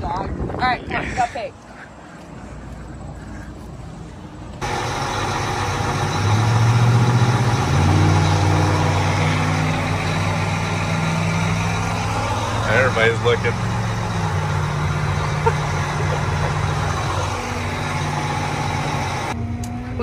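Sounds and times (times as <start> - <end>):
tractor diesel engine running: 4.1 - 19.4.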